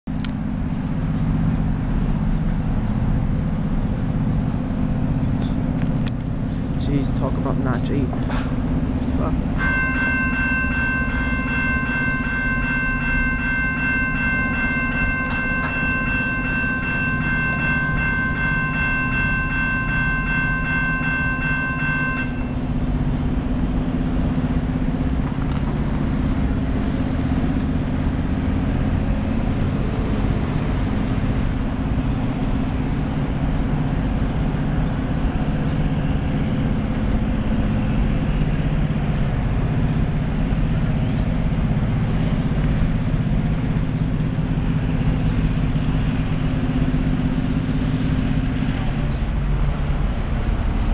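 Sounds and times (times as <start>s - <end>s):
diesel locomotive rumble: 0.1s - 50.9s
crossing warning bell ringing: 6.8s - 24.4s.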